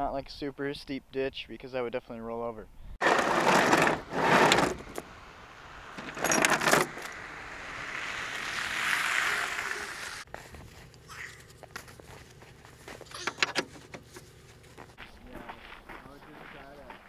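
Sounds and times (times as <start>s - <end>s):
pickup truck on dirt road: 3.0s - 17.0s
tow chain clinking and rattling: 6.0s - 7.2s.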